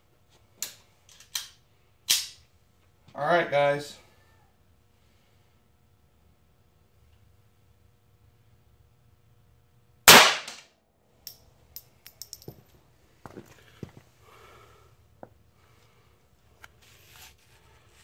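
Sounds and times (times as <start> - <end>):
pistol shot: 10.1 - 10.7.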